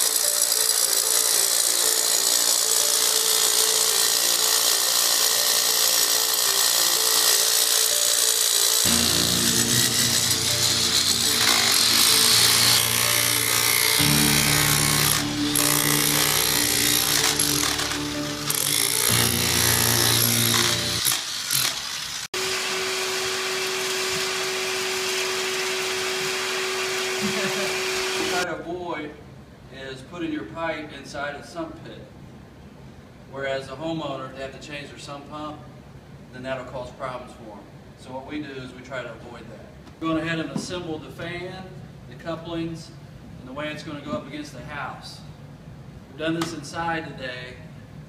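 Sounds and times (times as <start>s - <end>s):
electric drill grinding into concrete: 0.0s - 28.4s
shop vacuum whining: 0.0s - 28.4s
vacuum sucking gravel: 8.9s - 22.6s.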